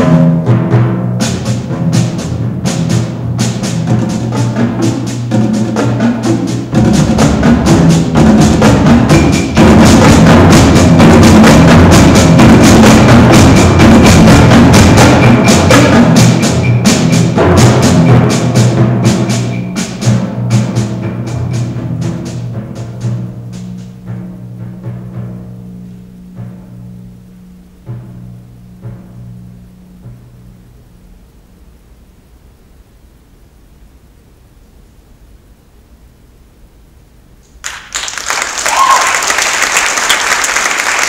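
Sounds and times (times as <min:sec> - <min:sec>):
rapid drum strokes: 0:00.0 - 0:31.1
rolled timpani notes: 0:00.0 - 0:31.8.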